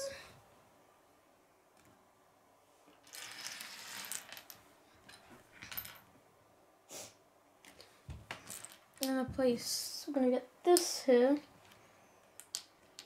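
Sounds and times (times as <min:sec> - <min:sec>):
plastic pieces clattering on wood: 0:03.0 - 0:06.0
plastic pieces clicking and tapping: 0:11.6 - 0:13.0.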